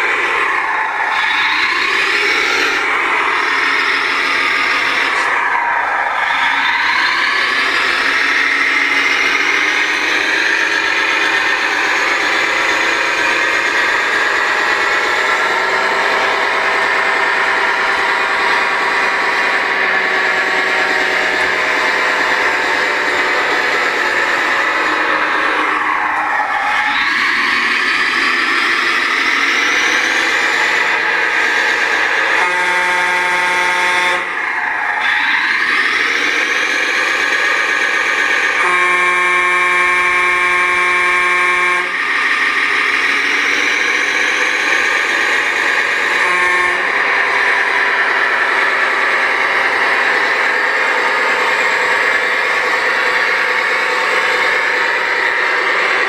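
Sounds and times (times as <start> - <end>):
diesel engine running sound effect: 0.0 - 56.0
model truck drive whirring: 0.0 - 56.0
multi-tone truck horn: 10.1 - 25.7, 30.2 - 34.4, 38.4 - 42.3, 45.6 - 56.0.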